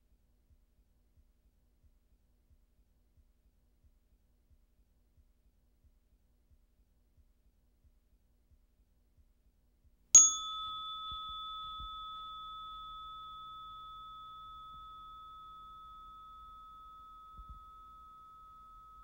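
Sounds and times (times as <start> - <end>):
metal chime bar ringing: 10.2 - 19.0.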